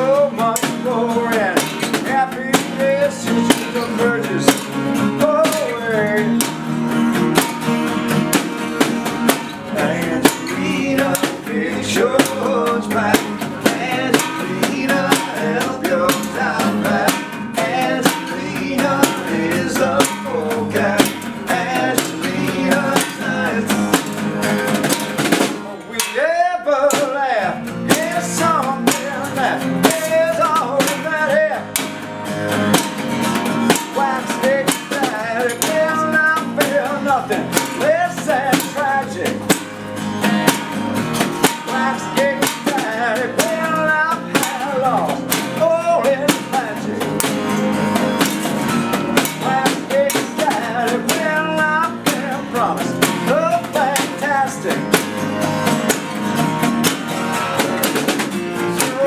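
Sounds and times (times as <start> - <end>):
man singing: 0.0 - 6.8, 9.3 - 32.0, 33.5 - 40.6, 41.2 - 48.3, 49.0 - 55.2, 57.3 - 59.0
acoustic guitars strumming: 0.0 - 59.0
snare drum beat: 5.4 - 11.5, 53.0 - 59.0.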